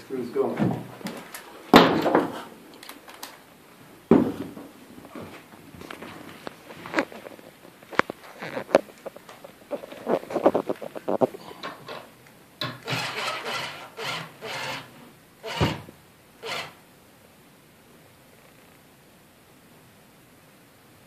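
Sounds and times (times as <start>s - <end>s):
cordless drill driving screw into wood: 12.7s - 16.8s.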